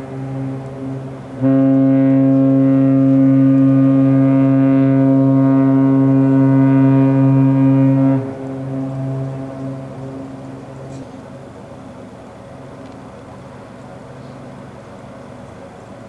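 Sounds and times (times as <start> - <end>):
ship horn blast: 0.0 - 12.8.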